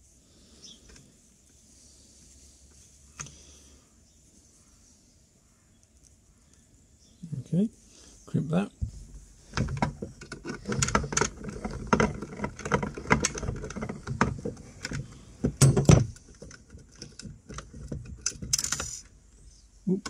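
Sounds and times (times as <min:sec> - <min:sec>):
rustling and clicks of handling: 0:08.8 - 0:20.0
crimping tool squeezing terminal: 0:09.2 - 0:19.1.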